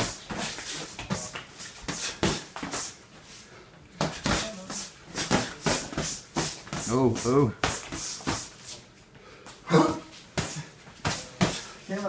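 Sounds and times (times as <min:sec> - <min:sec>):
punches on boxing gloves: 0:00.0 - 0:03.0, 0:04.0 - 0:08.5, 0:09.8 - 0:11.7.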